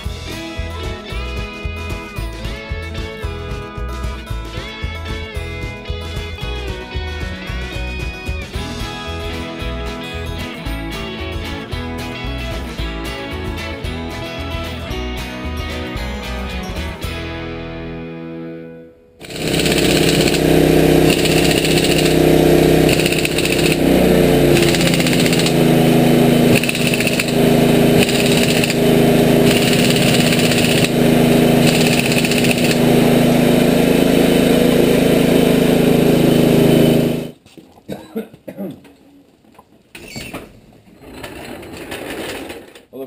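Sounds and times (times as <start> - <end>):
air impact wrench whirring: 19.2 - 37.4
pneumatic tools droning: 19.2 - 37.4.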